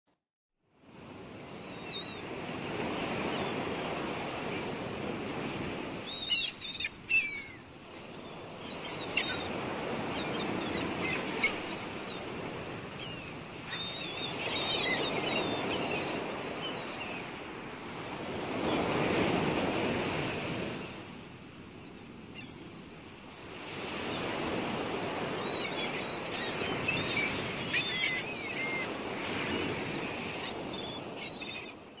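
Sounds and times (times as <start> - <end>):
gulls calling: 1.3 - 17.5, 23.8 - 32.0
sea surf washing in: 2.2 - 6.1, 8.4 - 21.4, 23.2 - 31.2.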